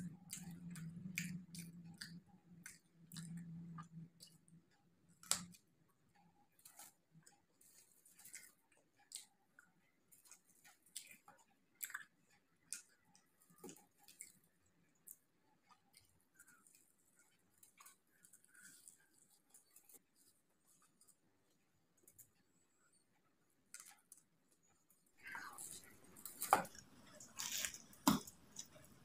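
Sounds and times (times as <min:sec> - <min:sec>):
chewing crunchy food: 0:00.0 - 0:29.0
pastry crackling: 0:23.8 - 0:29.0.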